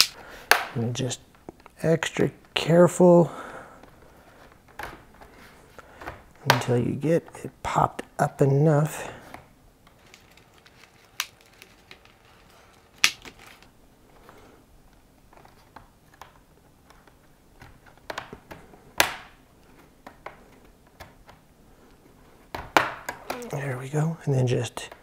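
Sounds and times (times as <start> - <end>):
plastic clips snapping loose: 0.0 - 0.8, 13.0 - 13.4
faint handling: 8.9 - 18.0.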